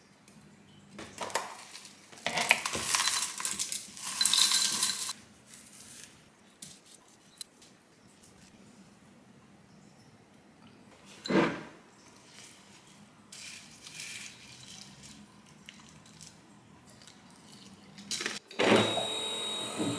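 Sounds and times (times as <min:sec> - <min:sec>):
granola rattling into a bowl: 0:01.2 - 0:05.2.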